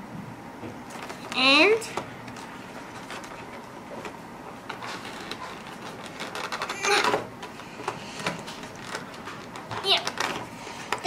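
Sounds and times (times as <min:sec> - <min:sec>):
plastic pieces clattering: 0:04.7 - 0:07.6
plastic toy pieces rattling: 0:04.8 - 0:07.2, 0:08.5 - 0:11.0.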